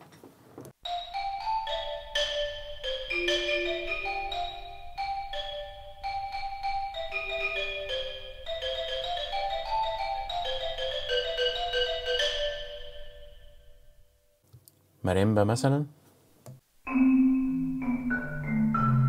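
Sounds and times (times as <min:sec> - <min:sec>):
xylophone melody: 0:00.8 - 0:14.0, 0:16.9 - 0:19.0.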